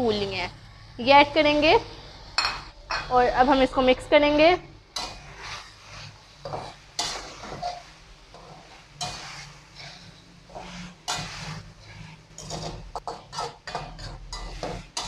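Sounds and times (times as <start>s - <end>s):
metal spoon scraping wok: 4.9s - 15.0s
chicken sizzling in oil: 5.0s - 15.0s.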